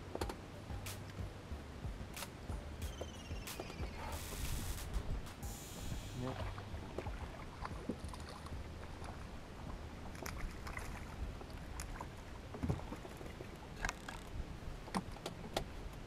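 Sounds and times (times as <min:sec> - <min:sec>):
low rumble: 0:00.0 - 0:12.9
gear clicking and knocking in boat: 0:06.4 - 0:16.0.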